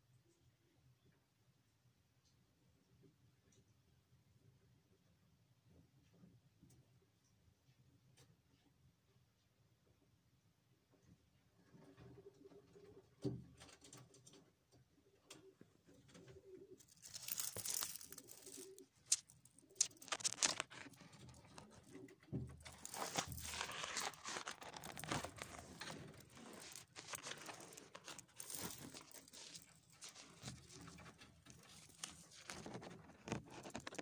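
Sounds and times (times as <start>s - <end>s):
pigeons rustling and scratching: 11.6s - 34.0s
pigeon cooing: 15.0s - 19.0s.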